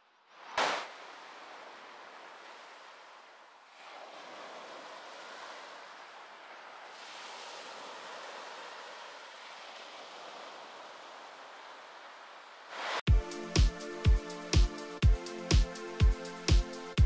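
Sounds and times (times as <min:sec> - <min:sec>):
small waves washing up shore: 0:00.3 - 0:13.1.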